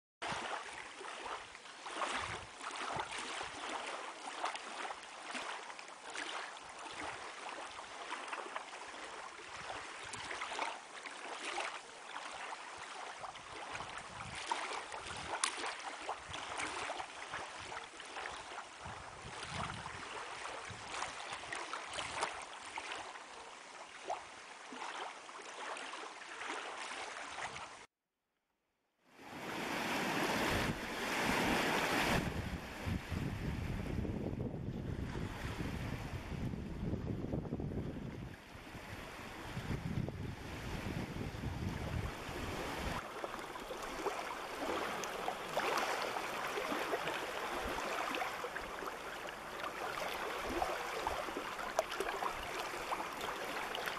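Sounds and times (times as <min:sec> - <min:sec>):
lake water lapping: 0:00.2 - 0:27.9, 0:29.3 - 0:33.1, 0:38.2 - 0:53.9
wind buffeting microphone: 0:13.9 - 0:14.4, 0:18.8 - 0:20.1, 0:30.2 - 0:43.0
waves breaking on pebble shore: 0:29.3 - 0:33.0, 0:41.6 - 0:53.9.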